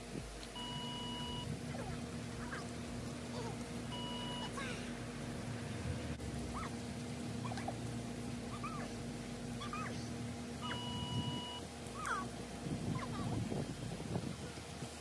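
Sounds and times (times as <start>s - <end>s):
steady low hum: 0.0s - 15.0s
electronic beep: 0.6s - 1.5s, 4.0s - 4.5s, 10.6s - 11.6s.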